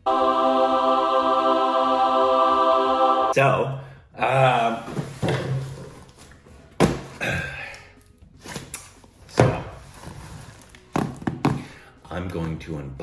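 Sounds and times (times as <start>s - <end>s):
cardboard box thudding on wooden table: 6.8s - 7.2s.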